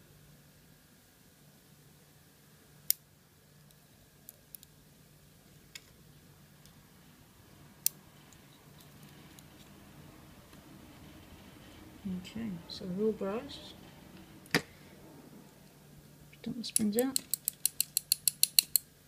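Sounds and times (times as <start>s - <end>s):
tweezers clicking on metal: 16.7s - 18.9s.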